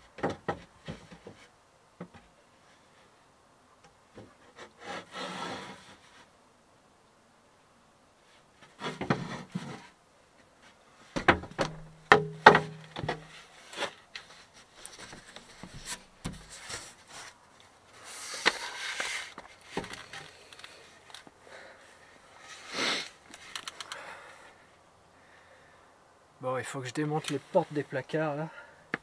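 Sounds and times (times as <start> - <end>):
wooden board scraping: 4.2 - 6.3, 8.6 - 10.0, 11.2 - 17.4, 18.0 - 20.4
wooden board knocking: 11.2 - 13.2.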